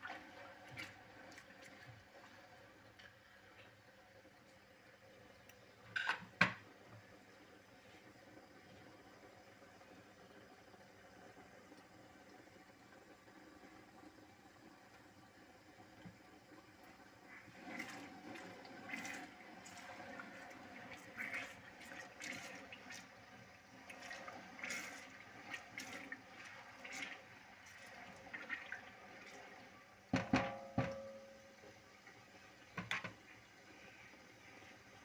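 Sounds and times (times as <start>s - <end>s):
stew sizzling and bubbling: 0.0s - 35.0s
spatula knocking metal pot: 30.2s - 31.2s.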